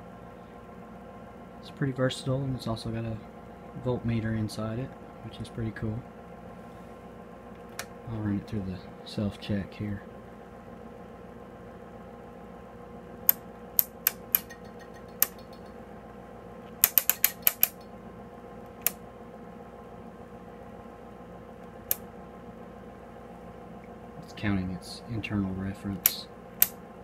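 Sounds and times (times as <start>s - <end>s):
steady low hum: 0.0s - 27.0s
rotary switch clicking: 13.2s - 15.8s, 16.8s - 17.9s, 18.7s - 19.0s.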